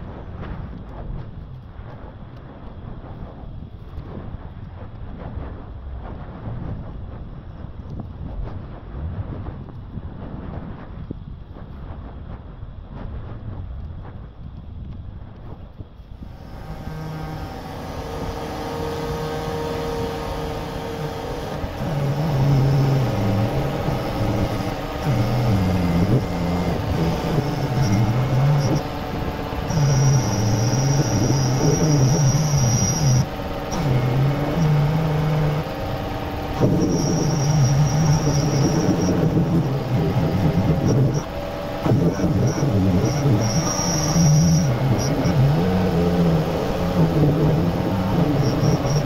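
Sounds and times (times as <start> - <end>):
machine hum: 16.0 - 49.0.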